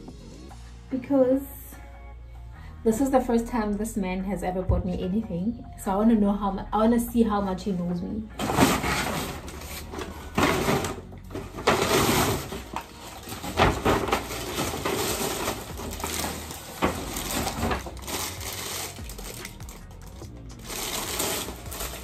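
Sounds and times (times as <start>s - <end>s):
paper rustling and crinkling: 8.4s - 22.0s.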